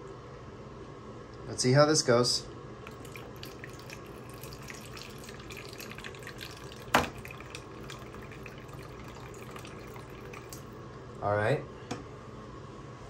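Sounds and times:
water trickling into plastic tray: 2.9s - 10.9s.

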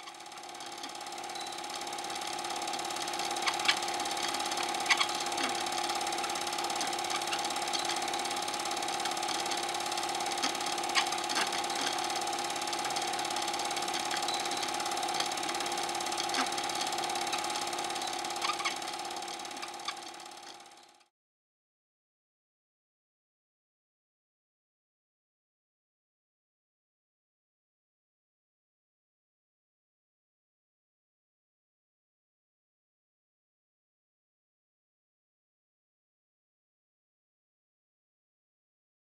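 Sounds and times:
film projector whirring: 0.0s - 21.1s.

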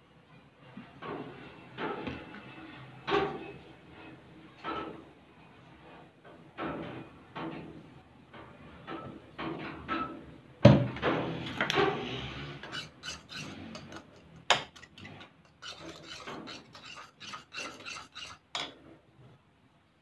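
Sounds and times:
metal spoon stirring glue: 12.4s - 18.7s.

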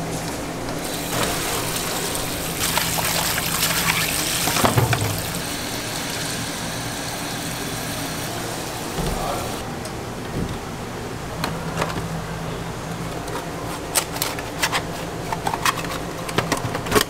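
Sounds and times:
tap water splashing into sink: 2.6s - 5.5s.

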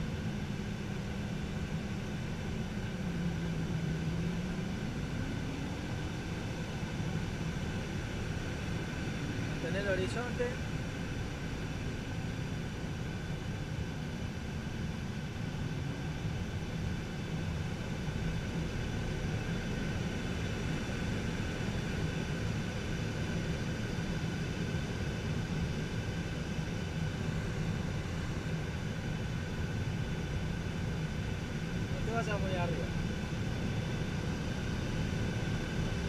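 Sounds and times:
air rushing in cockpit: 0.0s - 36.0s
propeller plane engine drone: 0.0s - 36.0s.

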